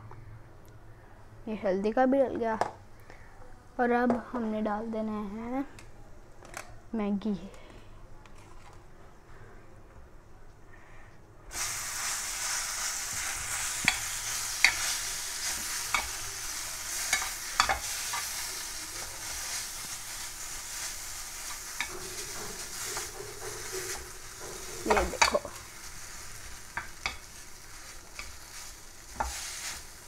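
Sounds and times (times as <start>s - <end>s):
noodles sizzling in hot oil: 11.5s - 30.0s.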